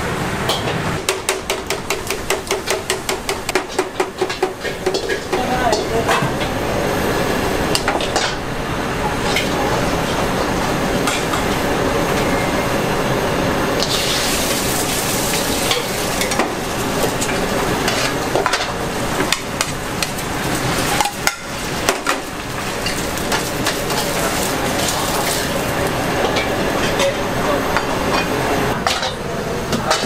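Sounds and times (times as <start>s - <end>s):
food sizzling in a wok: 13.5s - 28.5s.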